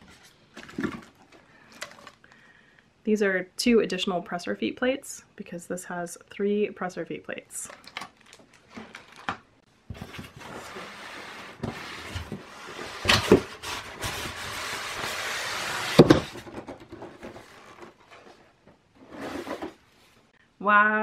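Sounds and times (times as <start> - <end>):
foam scraping against cardboard: 10.3 - 16.2.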